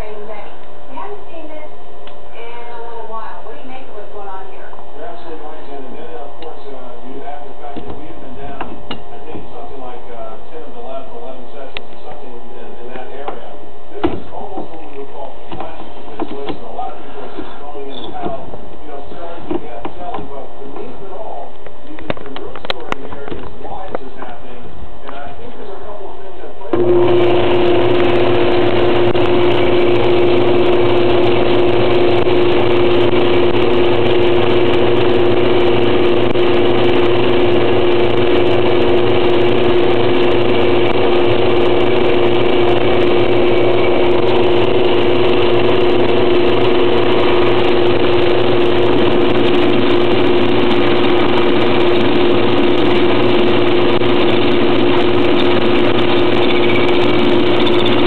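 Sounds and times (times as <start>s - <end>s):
metal lathe humming: 26.7s - 58.0s.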